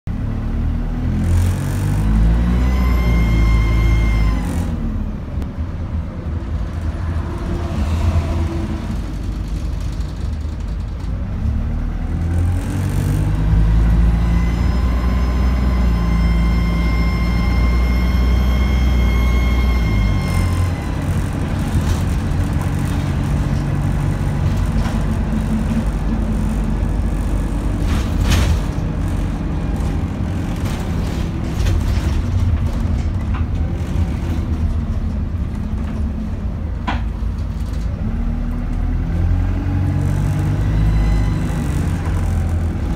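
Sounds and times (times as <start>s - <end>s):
bus engine rumble: 0.1s - 42.9s
high whine: 13.7s - 28.1s.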